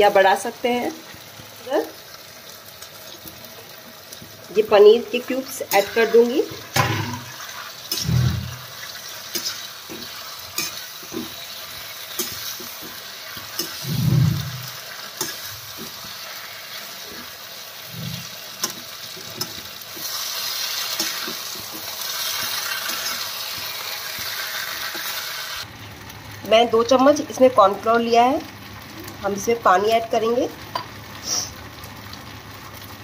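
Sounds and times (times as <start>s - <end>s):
food sizzling in a pan: 0.0s - 33.0s
metal spatula scraping a pan: 5.6s - 25.2s.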